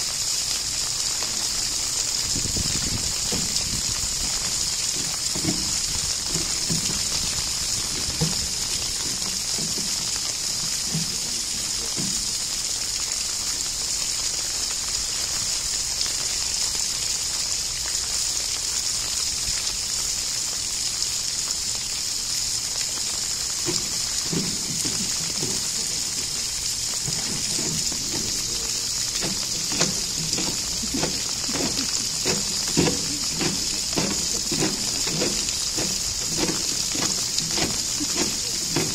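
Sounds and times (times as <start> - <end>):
running water rushing: 0.0 - 38.9
knocks and scrapes on plastic tank: 2.5 - 10.2, 27.0 - 28.5, 29.2 - 38.9.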